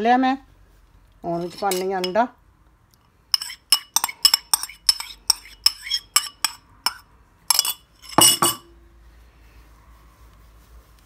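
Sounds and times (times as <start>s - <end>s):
metal spoon clinking against bowl: 1.4s - 2.2s, 3.3s - 8.7s.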